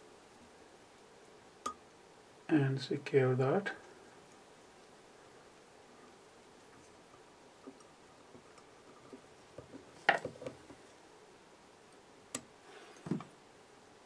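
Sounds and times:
small sharp clicks and ticks: 0:11.9 - 0:12.5.

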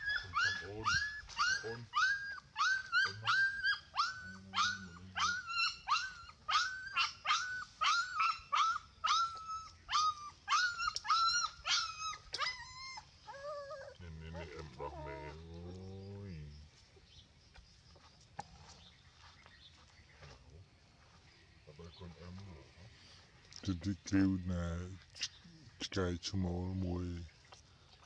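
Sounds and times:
puppy whining: 0:00.0 - 0:15.4.

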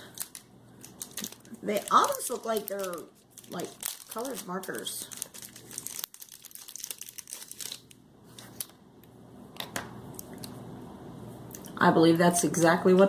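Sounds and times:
packaging crinkling: 0:00.0 - 0:08.8.

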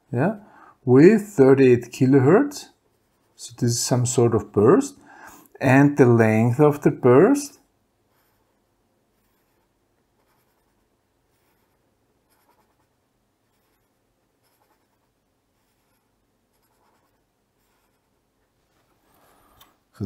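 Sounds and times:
pen scratching on paper: 0:08.1 - 0:18.2.

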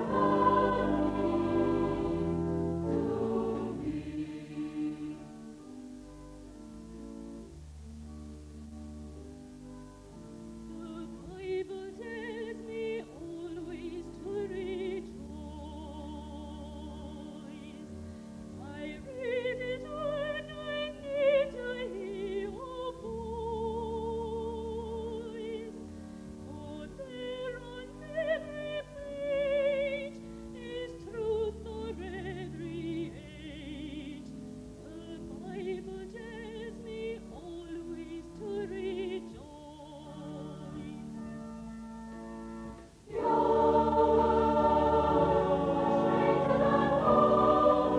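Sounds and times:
choir singing: 0:00.0 - 0:05.6, 0:43.1 - 0:47.9.

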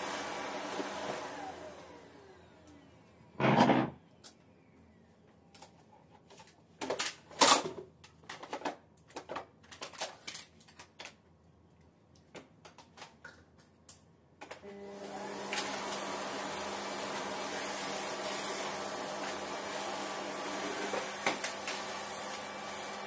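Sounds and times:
vacuum cleaner motor running: 0:00.0 - 0:03.1, 0:14.6 - 0:23.0.

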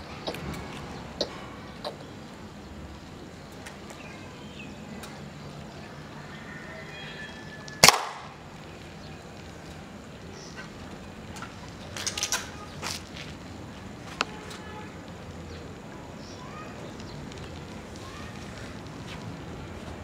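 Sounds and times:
pellet smacking target board: 0:07.8 - 0:08.3.

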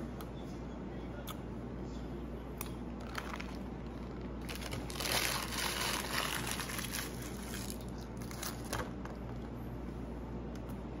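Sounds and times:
steady low hum: 0:00.0 - 0:11.0
paper wrapper crinkling: 0:03.0 - 0:08.8.

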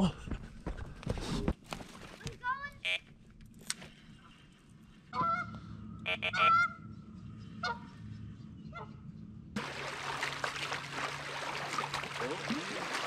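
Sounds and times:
geese honking: 0:05.1 - 0:06.8.

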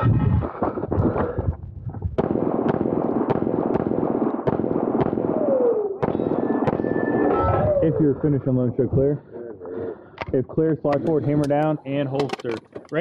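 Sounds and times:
pistol shots: 0:02.2 - 0:07.3.

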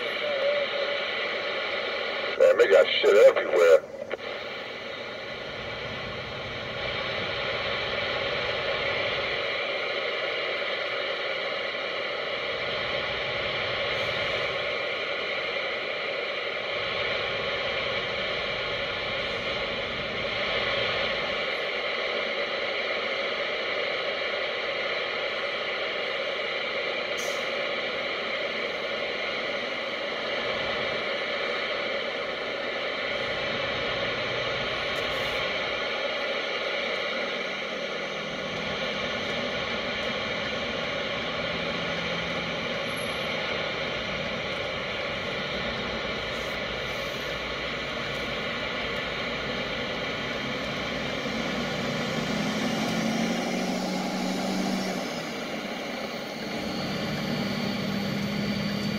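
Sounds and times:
road noise inside moving car: 0:37.4 - 0:55.1.

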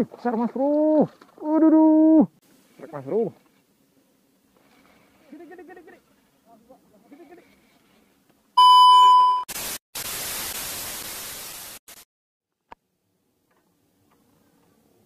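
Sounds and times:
loud steady beep: 0:08.6 - 0:09.5
static hiss: 0:09.5 - 0:12.1.

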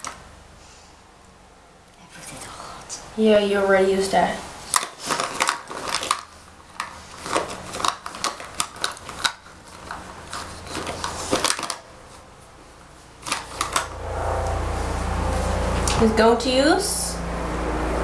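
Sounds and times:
low steady rumble: 0:13.6 - 0:18.0.

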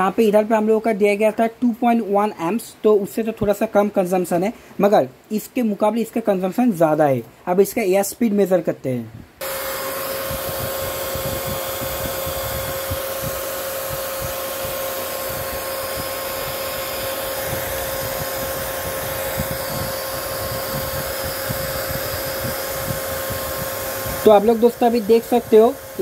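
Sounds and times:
blower fan whining: 0:09.2 - 0:26.0.

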